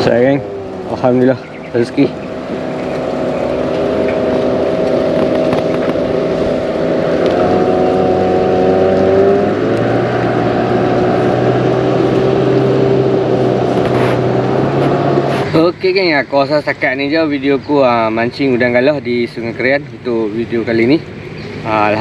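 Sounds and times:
motorboat engine running: 0.0s - 22.0s.

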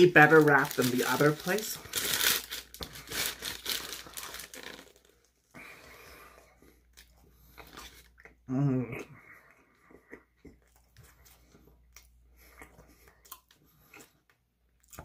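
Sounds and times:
paper wrapper crinkling: 0.0s - 5.4s
chewing: 6.6s - 15.0s.

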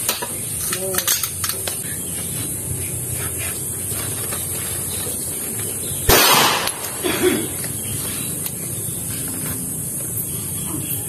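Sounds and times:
pistol shot: 6.1s - 7.0s.

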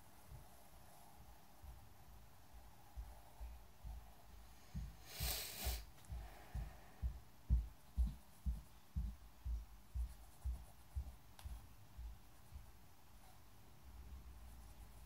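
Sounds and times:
pencil strokes thumping on table: 4.7s - 12.8s.

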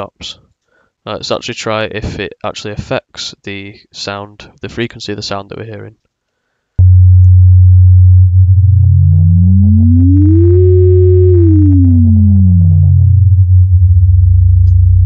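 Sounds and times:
steady low sine hum: 6.8s - 15.0s
gliding synthesizer tone: 8.2s - 15.0s.

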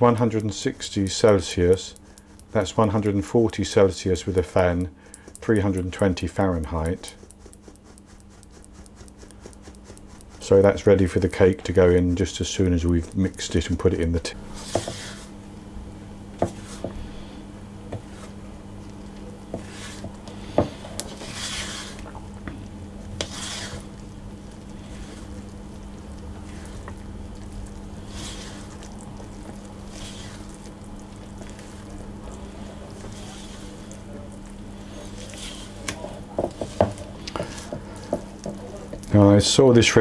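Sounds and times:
spatula tapping bowl: 0.0s - 2.6s, 4.8s - 10.4s, 35.2s - 39.1s
spatula stirring batter: 0.0s - 15.4s, 16.4s - 39.7s.

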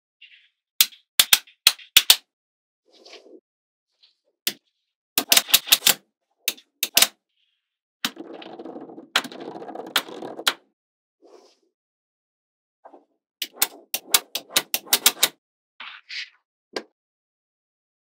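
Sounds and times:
magnetic balls clicking together: 0.8s - 2.2s, 5.2s - 7.1s, 13.4s - 15.3s.

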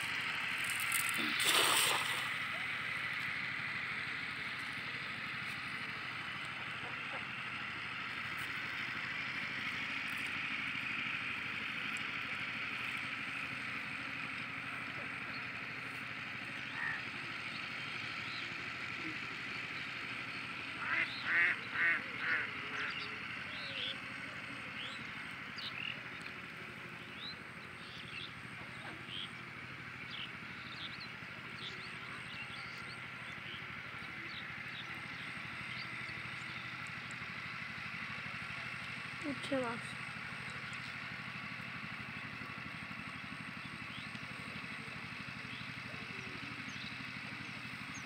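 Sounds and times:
engine running with low pulsing: 0.0s - 48.0s
outdoor background: 0.0s - 48.0s
loud bird calls: 16.4s - 26.2s.

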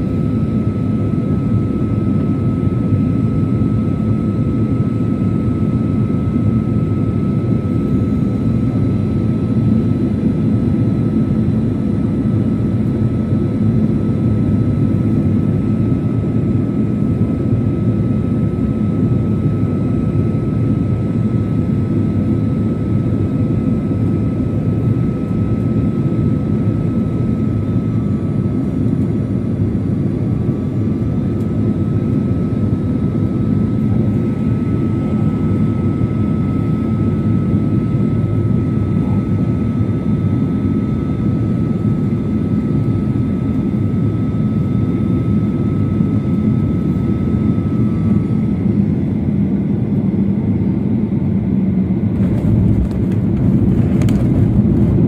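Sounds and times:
low rumble of engines and airflow: 0.0s - 55.0s
high whine: 52.0s - 55.0s.

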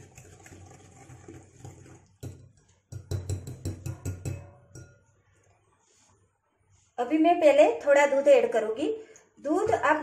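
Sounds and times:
whisk swishing wet mixture: 0.0s - 3.7s
whisk clinking against glass: 1.6s - 5.1s.

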